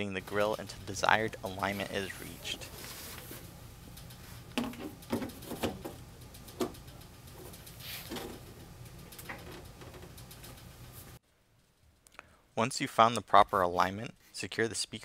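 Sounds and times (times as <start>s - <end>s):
faint steady hum: 0.0s - 15.0s
speaker grille knocks and scrapes: 4.6s - 6.8s.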